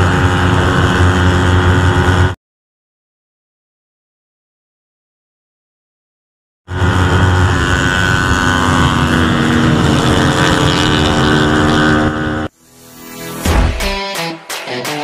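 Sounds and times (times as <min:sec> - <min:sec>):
motorcycle engine at high revs: 0:00.0 - 0:02.4, 0:06.7 - 0:13.6.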